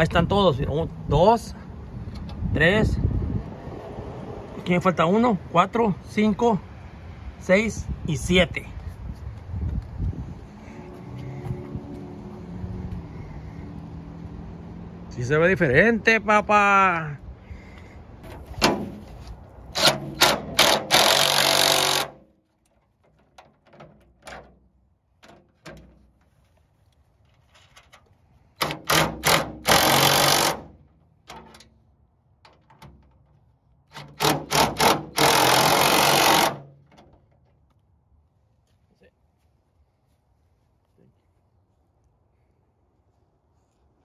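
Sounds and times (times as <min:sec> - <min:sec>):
cordless driver tightening bolts: 0:19.8 - 0:22.2, 0:28.6 - 0:31.7, 0:33.9 - 0:36.8.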